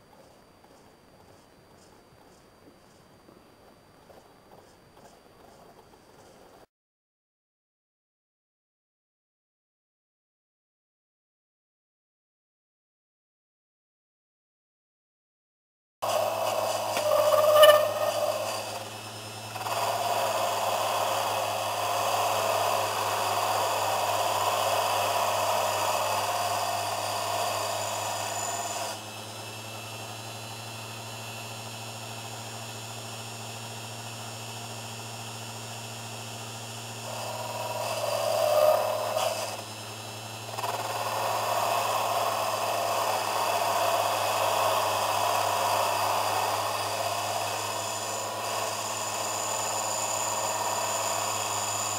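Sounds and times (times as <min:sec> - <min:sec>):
lathe motor hum: 0:16.0 - 0:51.9
tool scraping spinning metal: 0:16.0 - 0:51.9.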